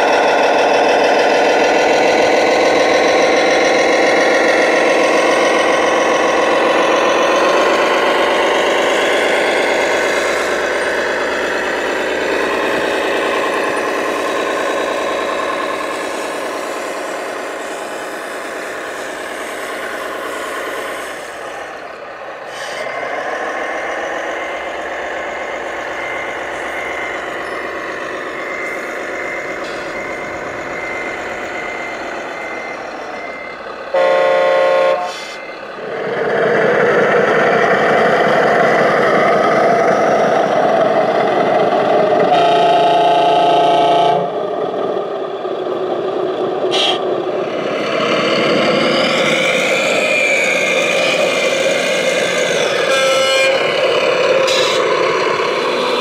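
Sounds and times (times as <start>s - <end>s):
horn blasts: 33.9s - 35.4s, 42.3s - 44.4s, 46.7s - 47.0s, 52.8s - 53.8s.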